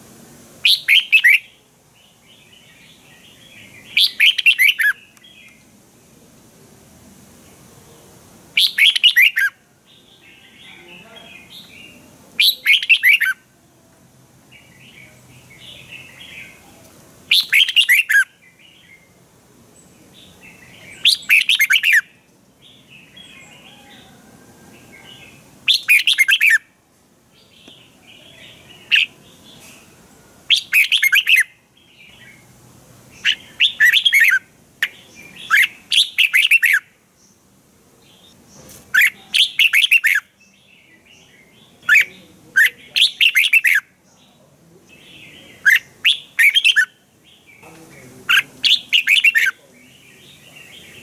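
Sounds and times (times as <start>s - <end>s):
bird singing quick phrases: 0.6s - 5.6s, 8.6s - 13.4s, 17.3s - 19.1s, 20.1s - 23.8s, 25.1s - 26.6s, 27.4s - 29.7s, 30.5s - 32.5s, 33.1s - 37.4s, 38.1s - 43.9s, 45.0s - 51.0s
soft bird chirping: 0.6s - 5.7s, 7.4s - 13.5s, 14.5s - 24.2s, 24.8s - 26.7s, 27.3s - 51.0s.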